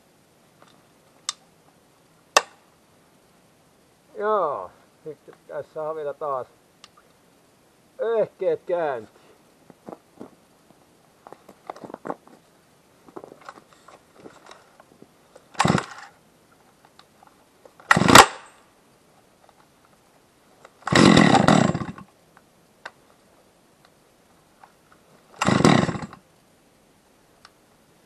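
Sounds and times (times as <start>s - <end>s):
chainsaw starting and dying: 15.5s - 16.2s, 17.8s - 18.6s, 20.8s - 22.1s, 25.3s - 26.2s.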